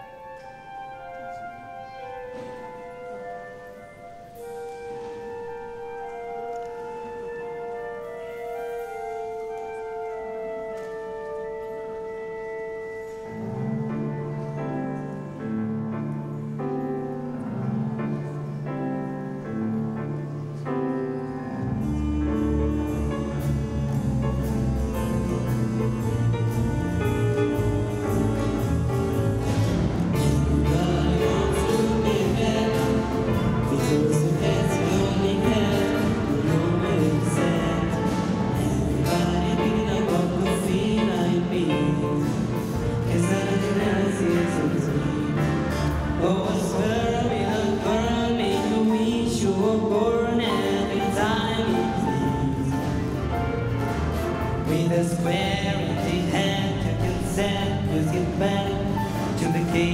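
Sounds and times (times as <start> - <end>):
orchestra playing: 0.0 - 59.9
bass and drum kit: 21.7 - 59.9.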